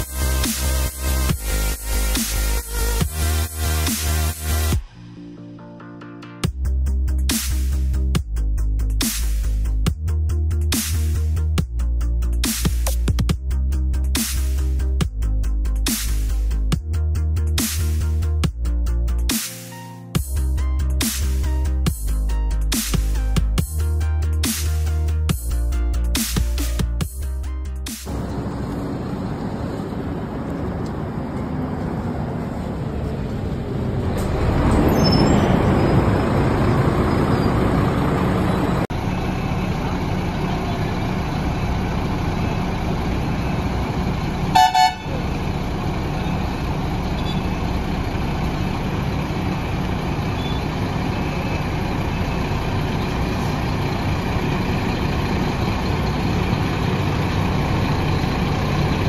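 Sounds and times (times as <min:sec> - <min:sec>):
diesel bus engine idling: 0:27.1 - 0:59.0
vehicle horn toots: 0:44.5 - 0:45.2.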